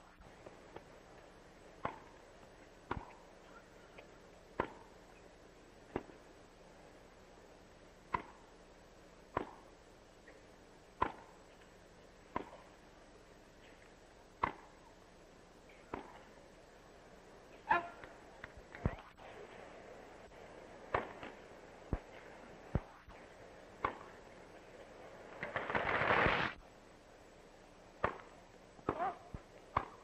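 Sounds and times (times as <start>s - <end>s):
faint steady hiss: 0.0s - 30.0s
tennis racket hitting ball: 1.8s - 2.2s, 11.0s - 11.3s, 14.4s - 14.7s, 28.0s - 30.0s.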